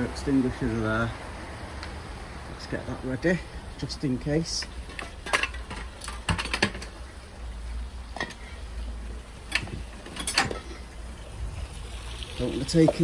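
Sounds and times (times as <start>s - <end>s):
objects clicking and knocking: 4.6s - 7.0s, 9.4s - 10.8s.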